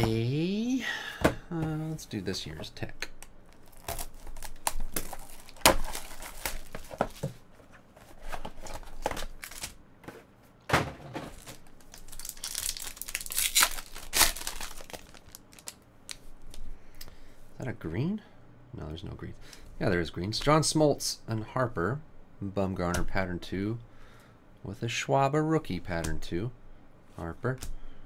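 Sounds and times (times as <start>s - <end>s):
foil pack crackling and tearing: 3.5s - 7.3s, 8.6s - 9.8s, 11.3s - 15.8s
plastic wrap crinkling and tearing: 3.5s - 7.3s, 8.3s - 9.8s, 11.3s - 16.2s.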